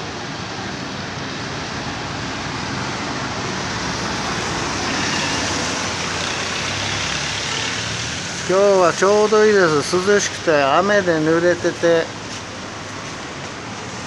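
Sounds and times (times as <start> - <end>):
vehicle engines running: 0.0 - 14.0
tyres hissing on wet road: 0.1 - 14.0
vehicle passing close: 1.5 - 10.1.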